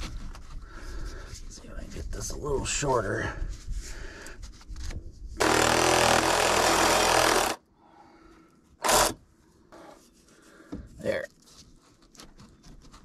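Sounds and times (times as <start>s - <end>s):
power saw cutting plastic pipe: 5.4s - 7.6s, 8.8s - 9.2s.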